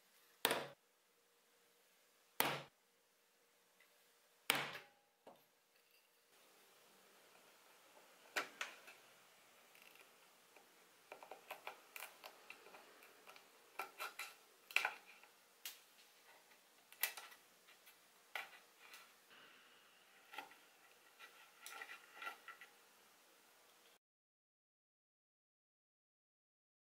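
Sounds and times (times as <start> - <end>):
steel pick scraping wood: 7.4 - 15.4, 20.1 - 22.8.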